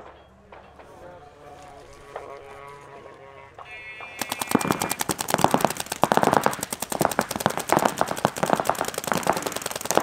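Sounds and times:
paintball markers firing: 4.0s - 10.0s.

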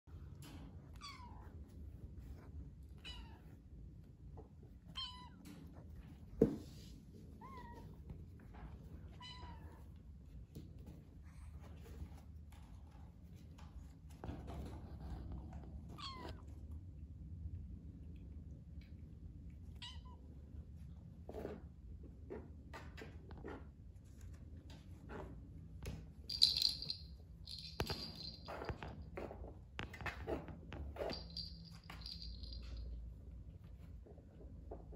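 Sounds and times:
kittens scuffling and tapping: 5.4s - 16.0s, 21.3s - 34.9s
rattling: 26.3s - 28.9s, 31.0s - 32.8s.

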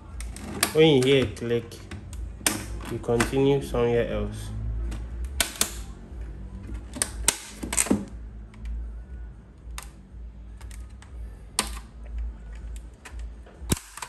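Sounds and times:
plastic clips clicking loose: 10.6s - 14.0s.

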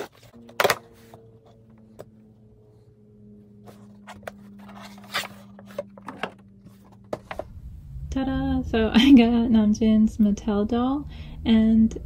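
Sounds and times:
soft steady hum: 0.0s - 12.0s.

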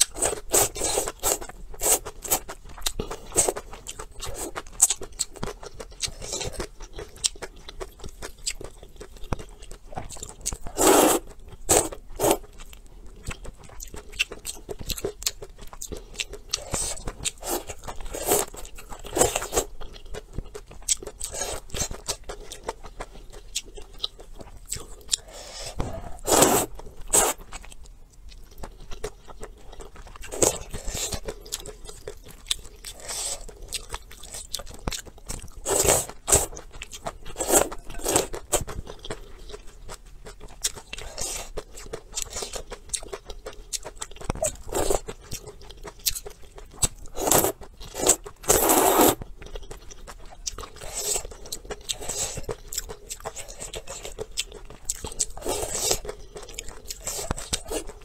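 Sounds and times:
chewing: 0.0s - 58.0s
person slurping noodles: 10.7s - 12.4s, 25.2s - 27.4s, 35.6s - 36.5s, 37.4s - 38.3s, 47.2s - 49.2s.

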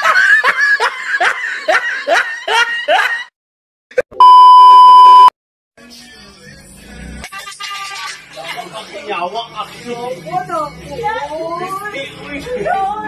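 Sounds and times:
loud electronic beep: 4.2s - 5.3s.

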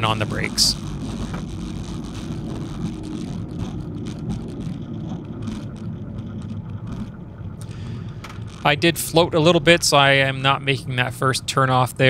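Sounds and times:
plane engine idling: 0.0s - 12.0s
wheels rumbling on runway: 0.0s - 12.0s.

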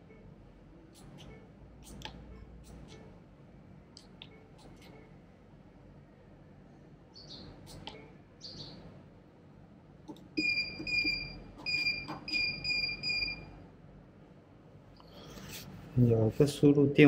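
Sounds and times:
intercom keypad beeps: 10.4s - 13.5s.

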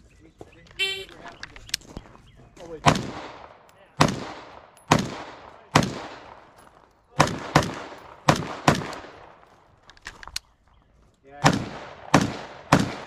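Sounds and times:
gunshots echoing: 2.8s - 9.4s, 11.4s - 13.0s.

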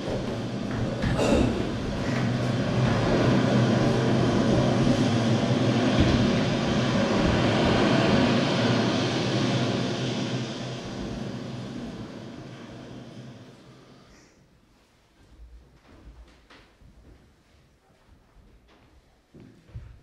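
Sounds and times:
low mechanical drone with hiss: 0.0s - 14.4s.

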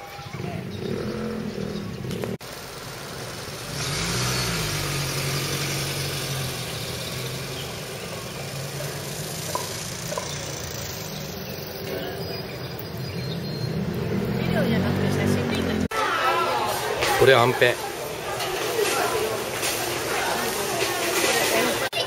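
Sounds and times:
vehicle engine humming: 0.0s - 15.9s
outdoor noise: 0.0s - 22.0s.

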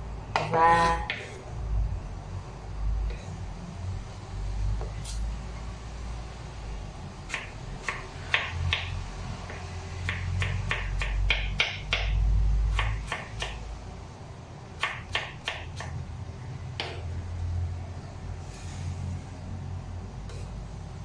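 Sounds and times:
knife chopping on wooden board: 0.4s - 1.4s, 7.3s - 13.6s, 14.8s - 16.0s, 16.8s - 17.1s.

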